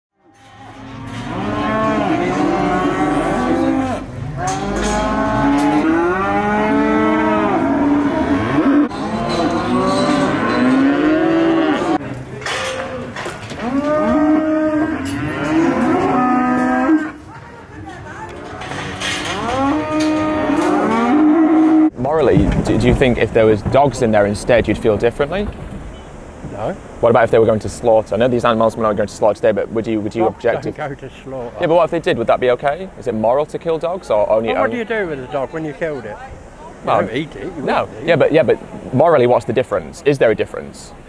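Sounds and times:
cattle mooing and bellowing: 0.2 - 12.0, 13.5 - 17.2, 18.6 - 22.0.

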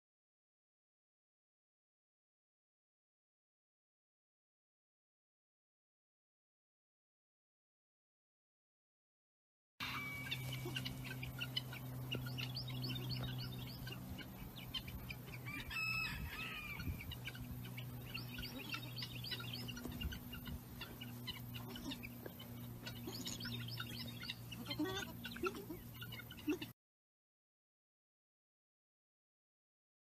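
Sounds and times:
steady low hum: 9.8 - 26.7
birds chirping and clucking: 9.8 - 26.8.

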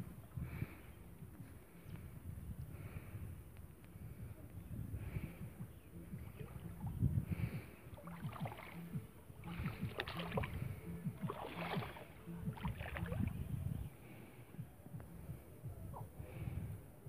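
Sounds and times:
low rumble: 0.0 - 17.0
shallow water splashing: 6.0 - 13.4.

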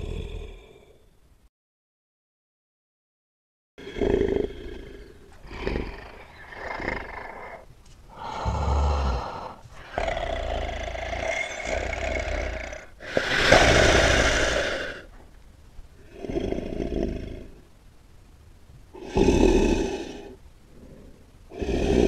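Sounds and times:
large animal snorting: 3.8 - 15.2, 16.0 - 17.6, 19.0 - 22.0.

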